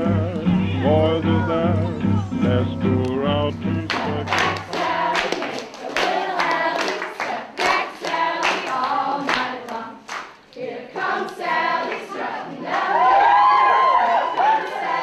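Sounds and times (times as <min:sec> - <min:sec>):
group singing: 0:00.0 - 0:13.4, 0:14.4 - 0:15.0
hand clapping: 0:03.9 - 0:09.5.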